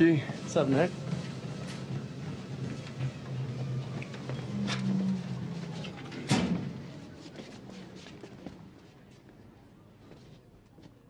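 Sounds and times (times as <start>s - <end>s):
metal locker door clanking shut: 6.1s - 6.8s.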